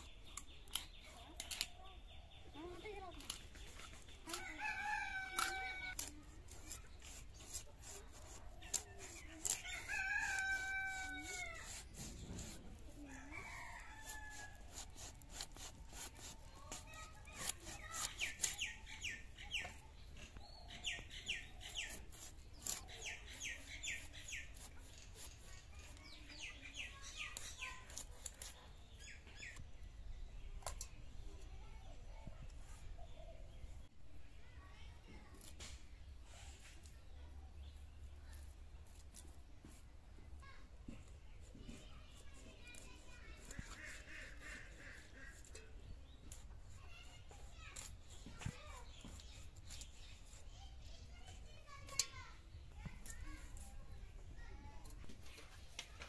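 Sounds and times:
blade clicking and scraping fish: 3.2 - 19.1
chickens calling: 8.7 - 15.1.

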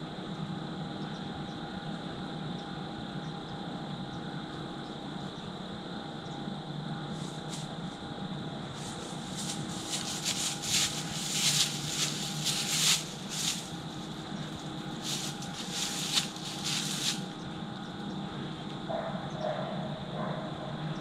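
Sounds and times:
footsteps rustling in dry grass: 7.1 - 17.5.

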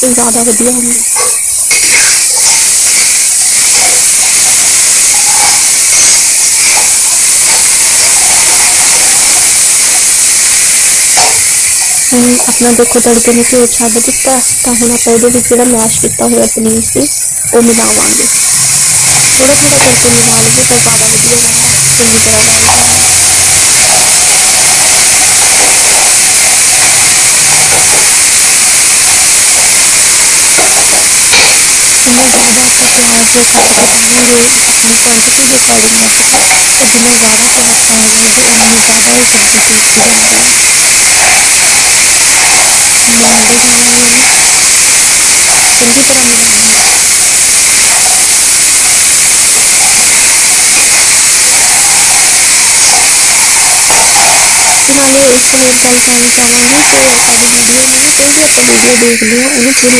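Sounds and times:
food sizzling in oil: 0.0 - 59.9
spatula scraping pan: 0.9 - 7.6, 10.5 - 12.5.

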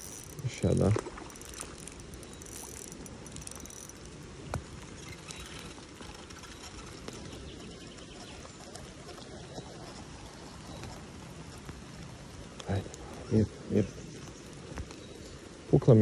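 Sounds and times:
fishing reel whirring and clicking: 0.0 - 8.8.

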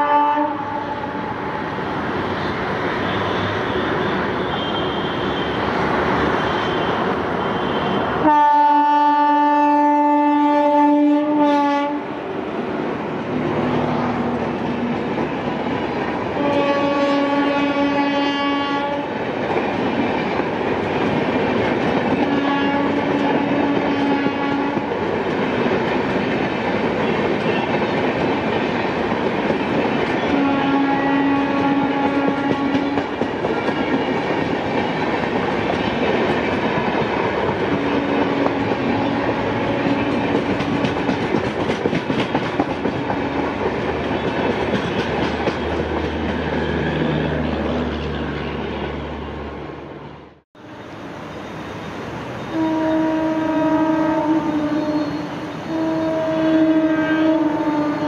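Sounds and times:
train horn blasts: 0.0 - 1.3, 3.0 - 12.2, 16.3 - 19.2, 22.2 - 25.0, 30.2 - 33.2, 37.9 - 40.9, 52.4 - 58.0
train rumbling past: 0.0 - 58.0.

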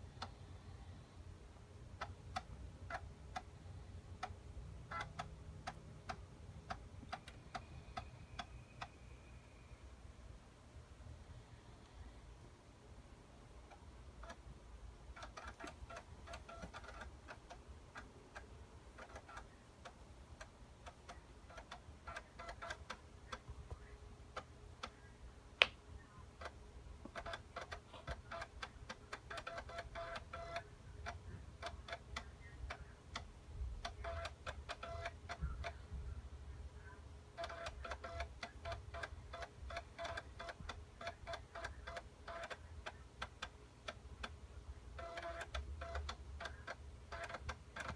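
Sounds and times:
floppy drive ticking: 13.6 - 25.7.

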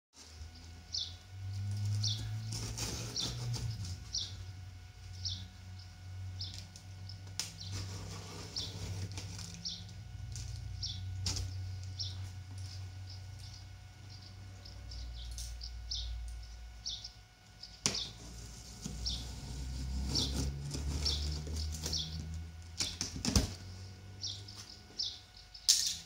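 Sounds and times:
steady low hum: 0.2 - 26.0
bird chirping: 0.5 - 4.5, 5.1 - 18.2, 20.0 - 23.0, 24.2 - 25.7
hands scraping cardboard box: 2.1 - 4.1, 7.7 - 9.6, 18.0 - 22.2.

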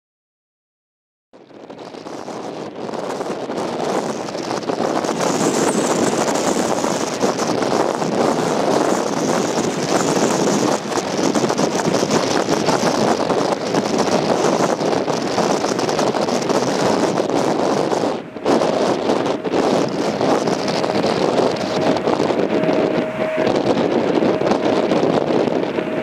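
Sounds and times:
wind buffeting microphone: 1.4 - 26.0.

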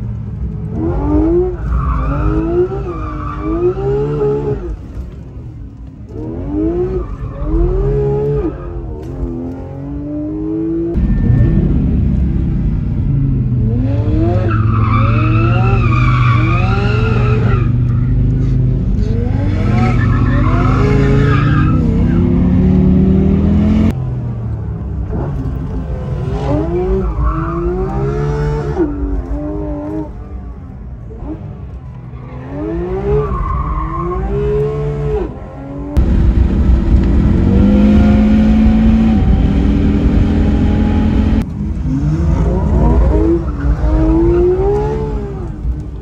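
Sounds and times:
car engine revving hard: 34.2 - 45.5.

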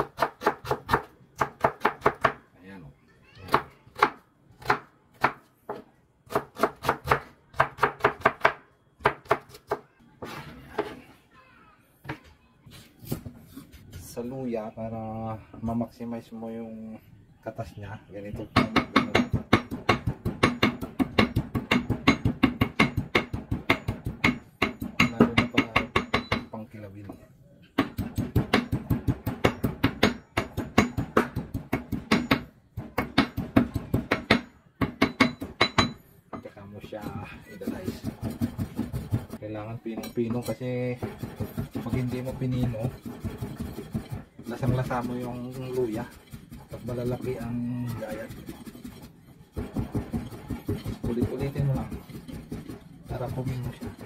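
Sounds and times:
knife chopping onion on cutting board: 0.0 - 2.4, 3.5 - 9.8, 18.6 - 26.4, 27.8 - 36.0, 37.0 - 39.4, 40.3 - 54.0.

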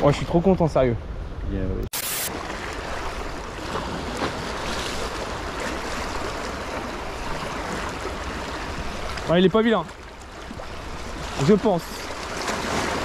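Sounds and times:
burst of static noise: 1.9 - 2.3
sea water washing against rocks: 10.5 - 13.0.

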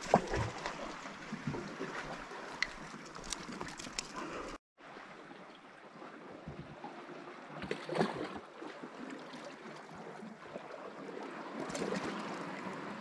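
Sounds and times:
water lapping against rocks: 0.0 - 5.0, 5.9 - 13.0.

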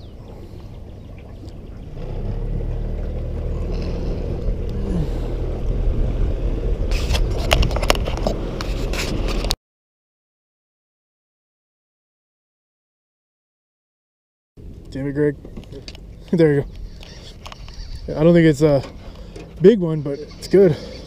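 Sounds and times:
boat motor running: 0.0 - 9.5, 14.7 - 21.0.

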